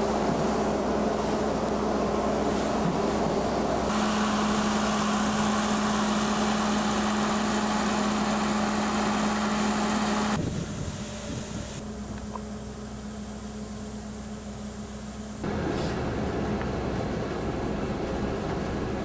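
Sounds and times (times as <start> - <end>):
diesel engine drone: 0.0 - 19.0.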